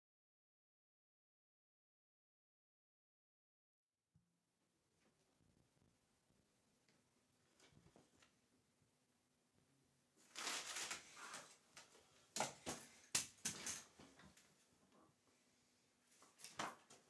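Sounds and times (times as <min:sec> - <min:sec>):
rustling: 0:10.2 - 0:14.8.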